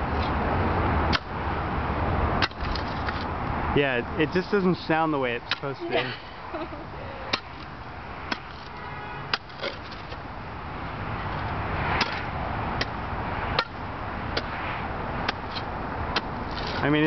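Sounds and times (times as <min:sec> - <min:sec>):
shovel chopping into hard ground: 0:12.0 - 0:12.9, 0:15.3 - 0:16.9.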